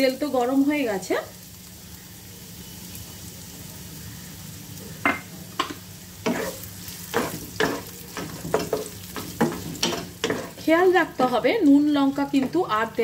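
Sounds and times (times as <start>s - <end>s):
onions sizzling in oil: 0.0s - 13.0s
wooden spatula scraping a pan: 6.2s - 10.8s.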